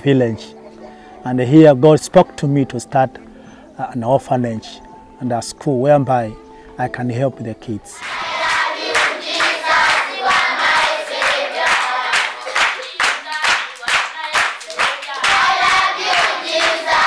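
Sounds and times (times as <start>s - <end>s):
children singing together: 8.0s - 17.0s
rhythmic hand clapping: 8.0s - 17.0s.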